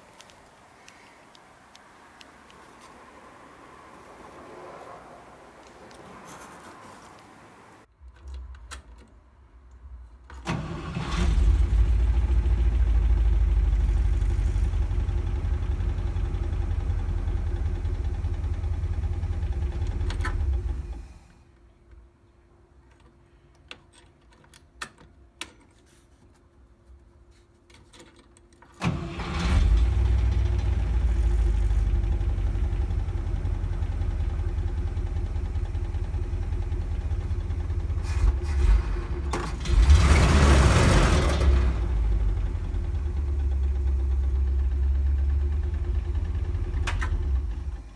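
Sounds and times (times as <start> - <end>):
engine cranking on starter: 10.3 - 21.2, 28.8 - 33.4, 38.0 - 47.9.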